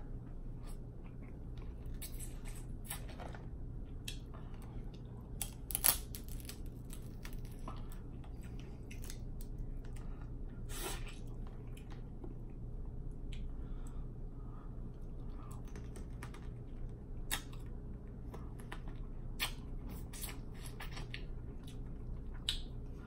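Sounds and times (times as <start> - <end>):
low hum: 0.0 - 23.0
crab shells cracking: 5.4 - 7.6.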